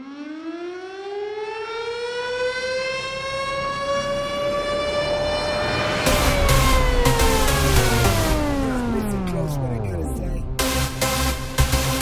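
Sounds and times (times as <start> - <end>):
air raid siren winding up: 0.0 - 9.6.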